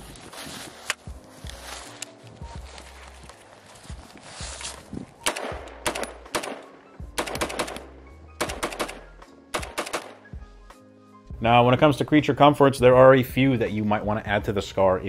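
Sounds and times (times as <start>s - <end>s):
background music: 0.0s - 15.0s
rifle shots: 5.2s - 10.3s.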